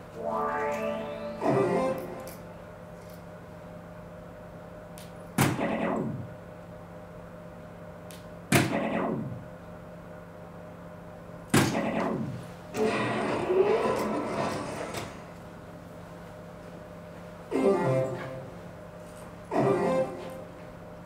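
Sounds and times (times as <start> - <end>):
faint steady hum: 0.0 - 21.0
electronic falling-pitch tone: 0.1 - 2.4.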